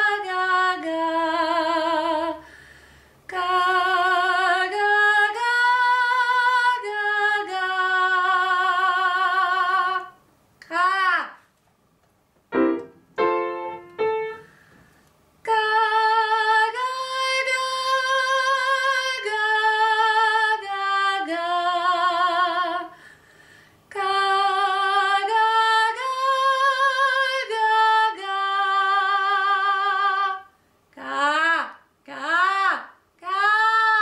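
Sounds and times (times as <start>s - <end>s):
woman singing unaccompanied: 0.0s - 2.5s, 3.3s - 11.4s, 15.4s - 23.0s, 23.9s - 34.0s
piano notes: 12.5s - 14.4s.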